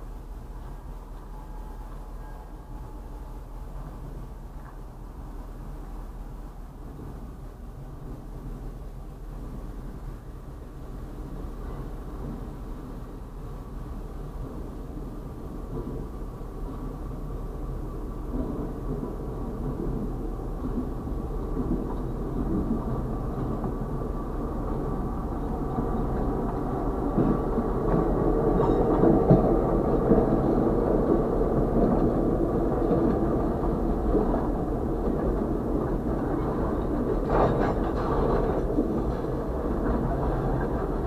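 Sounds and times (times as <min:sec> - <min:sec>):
diesel locomotive running past: 0:00.0 - 0:41.0
freight cars rolling by: 0:11.2 - 0:41.0
train wheels knocking: 0:18.3 - 0:41.0.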